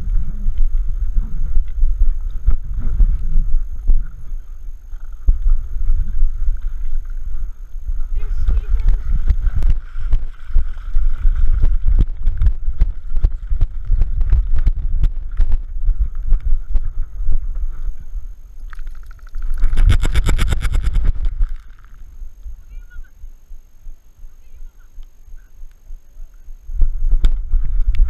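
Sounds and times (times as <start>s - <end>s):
camera rumbling and thumping: 0.0s - 22.9s, 26.8s - 28.0s
fast even rattling: 18.7s - 22.1s.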